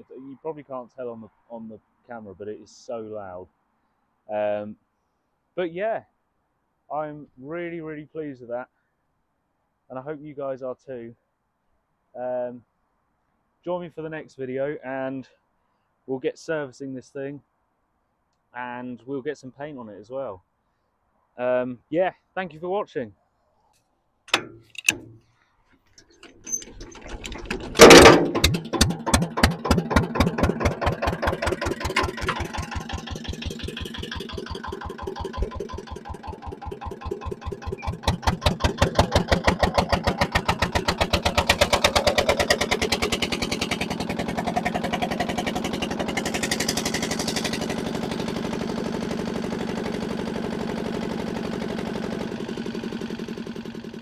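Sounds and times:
loud diesel engine running: 0:27.3 - 0:54.0
loud bang: 0:27.8 - 0:28.5.

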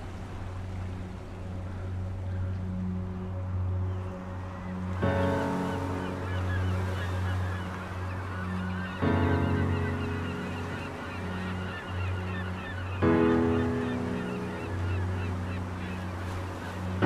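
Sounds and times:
gulls calling: 0:00.0 - 0:17.0.

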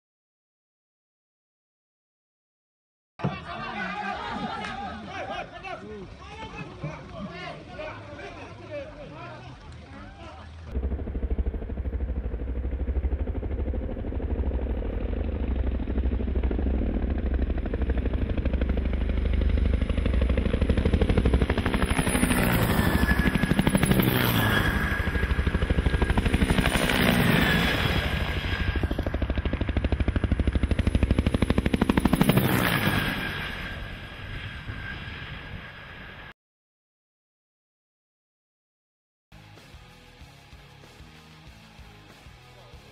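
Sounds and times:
helicopter rotor beat: 0:10.3 - 0:36.3
turbine whine: 0:10.6 - 0:36.4.

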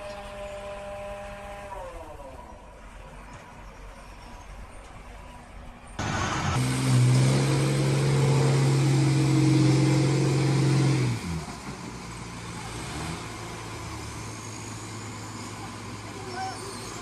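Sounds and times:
diesel engine running: 0:05.6 - 0:17.0.

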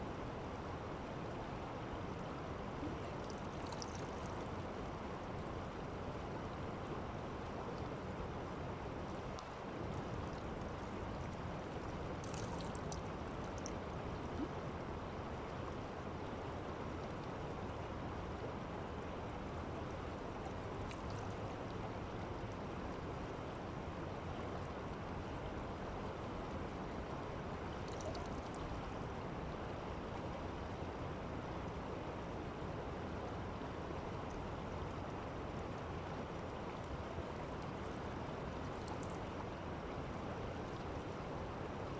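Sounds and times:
faint light ticks: 0:09.1 - 0:11.4, 0:12.2 - 0:13.8, 0:20.8 - 0:21.4, 0:34.3 - 0:34.5.

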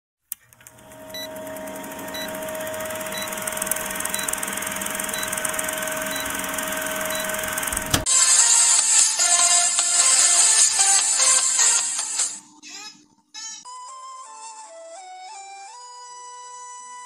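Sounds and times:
film projector whirring clatter: 0:00.3 - 0:12.4.

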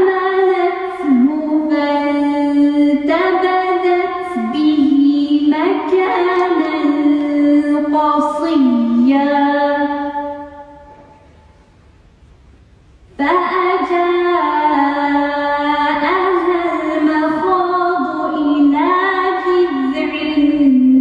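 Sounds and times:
woman chanting melodically: 0:00.0 - 0:11.0, 0:13.2 - 0:21.0.

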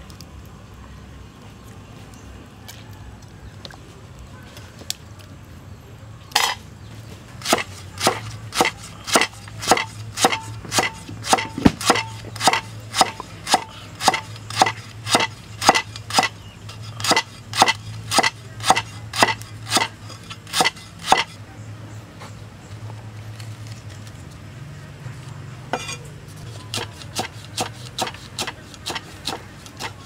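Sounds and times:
cleaver chopping on wooden block: 0:07.4 - 0:16.4, 0:17.0 - 0:21.3, 0:26.7 - 0:30.0.

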